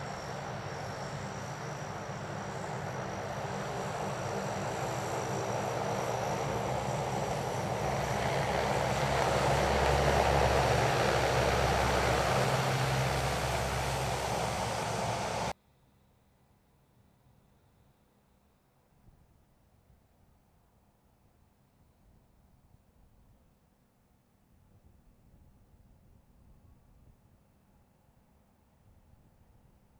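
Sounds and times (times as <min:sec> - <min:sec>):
turboprop aircraft engines: 0:00.0 - 0:15.6.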